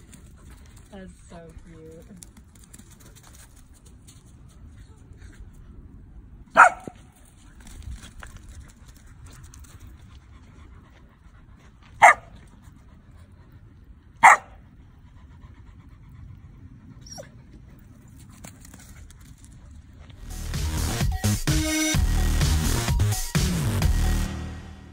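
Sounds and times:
dog barking: 6.5s - 7.0s, 12.0s - 12.3s, 14.2s - 14.6s
dog yipping: 6.6s - 7.0s, 12.0s - 12.3s, 14.2s - 14.5s.

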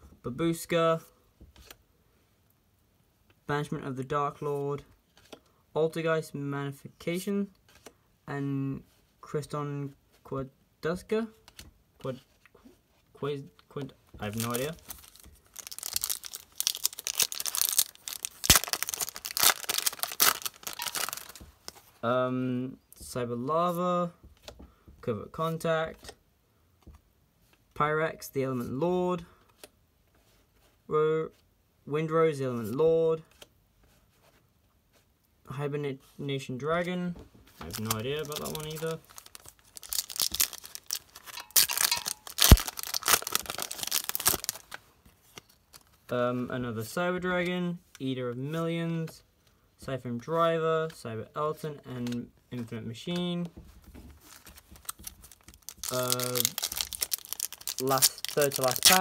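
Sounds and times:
foil wrapper crinkling and tearing: 14.3s - 21.5s, 37.7s - 44.8s, 54.2s - 59.0s
sharp crack: 15.8s - 21.3s, 37.7s - 44.6s.

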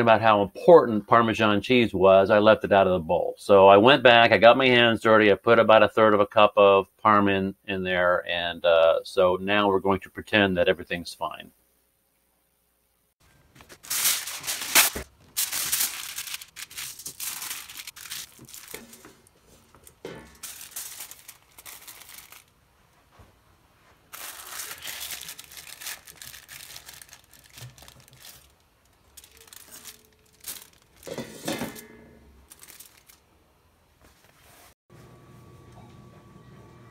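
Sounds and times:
aluminium foil crinkling: 13.6s - 22.5s, 24.1s - 33.3s.

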